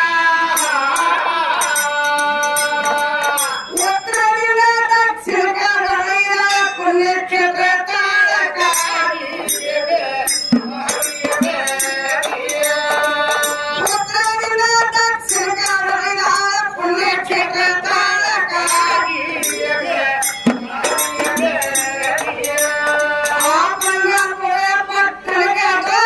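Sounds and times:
hand cymbals clinking: 0.5 - 5.0, 8.7 - 16.6, 18.6 - 24.4
woman singing folk song: 3.8 - 9.4, 12.4 - 20.0, 22.2 - 26.0.

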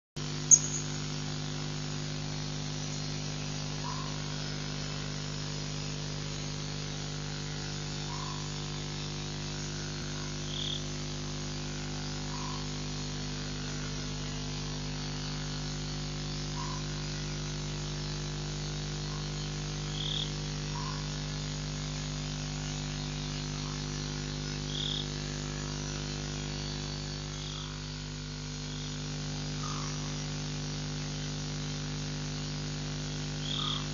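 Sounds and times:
electrical hum and hiss: 0.2 - 33.9
faint short calls: 0.5 - 1.0.

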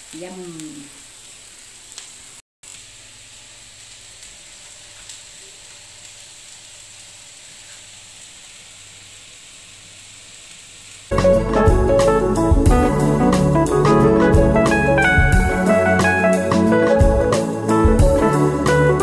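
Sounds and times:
faint steady hiss: 0.0 - 11.1.

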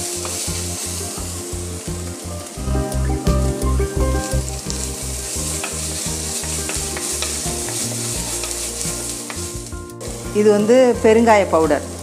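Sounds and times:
ginger sizzling in oil: 0.0 - 12.0
wooden spoon stirring in pot: 4.4 - 12.0.

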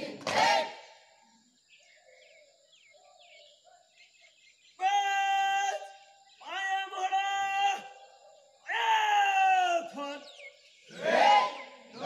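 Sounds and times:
birds chirping faintly: 0.8 - 12.0
drill commander shouting commands: 4.8 - 10.4.

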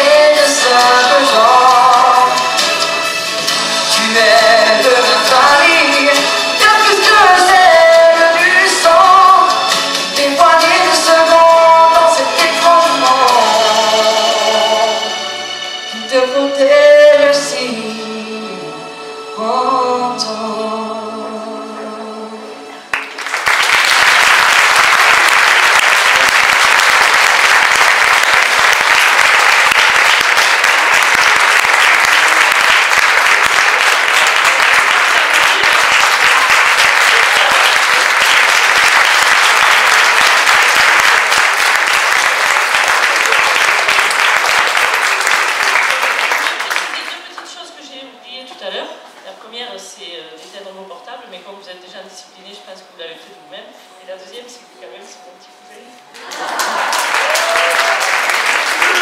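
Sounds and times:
sung pop ballad: 0.0 - 15.0
audience applause: 22.9 - 47.3, 56.2 - 59.0.

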